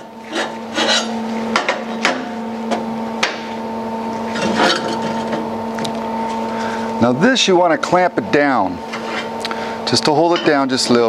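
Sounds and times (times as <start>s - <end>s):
steady hum: 0.0s - 11.0s
metal plates scraping: 0.3s - 1.2s, 4.3s - 5.4s, 8.9s - 9.3s.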